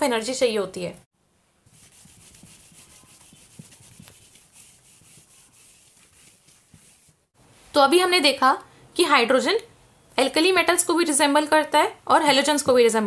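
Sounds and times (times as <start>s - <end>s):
pen scratching on paper: 1.7s - 7.2s.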